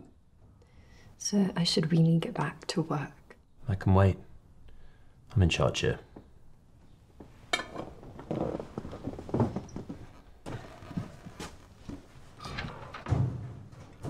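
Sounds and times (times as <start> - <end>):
rustling: 7.2 - 14.0.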